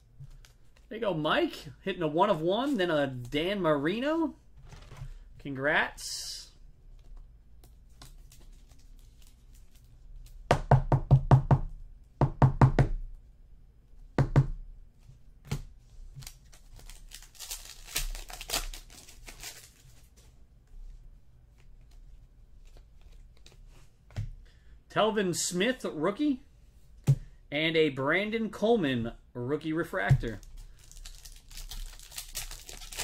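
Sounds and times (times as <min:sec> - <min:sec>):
cards rustling and crinkling: 0:00.2 - 0:01.0, 0:06.9 - 0:10.4, 0:15.9 - 0:24.4, 0:30.0 - 0:33.0.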